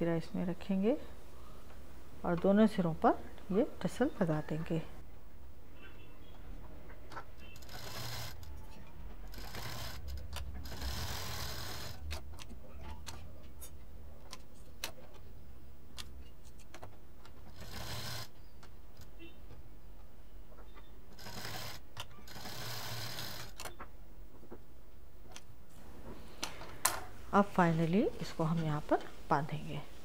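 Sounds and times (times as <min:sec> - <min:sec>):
sewing machine stitching: 0:07.4 - 0:12.2, 0:17.5 - 0:18.4, 0:21.1 - 0:23.7.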